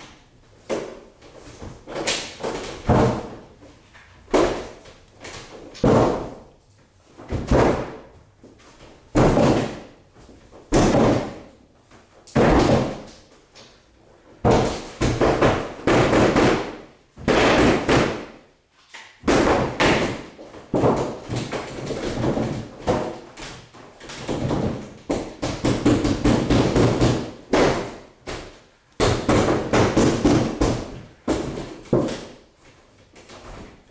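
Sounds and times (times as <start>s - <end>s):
wooden door banging: 1.7s - 3.5s.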